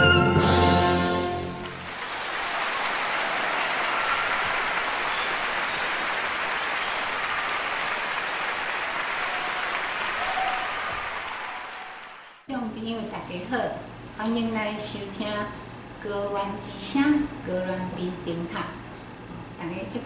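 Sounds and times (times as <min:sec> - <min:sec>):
audience applauding: 0:01.2 - 0:12.5.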